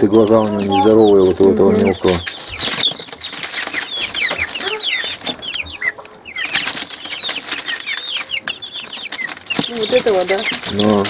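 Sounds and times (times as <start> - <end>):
chicks peeping: 0.0 - 11.0
scuffling in a box: 6.4 - 11.0.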